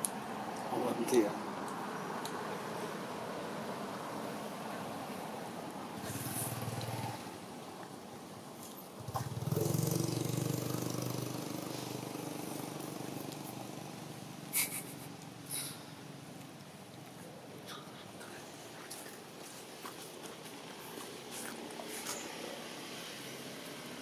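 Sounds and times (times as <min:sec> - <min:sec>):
vehicle engine running: 0:09.0 - 0:16.4.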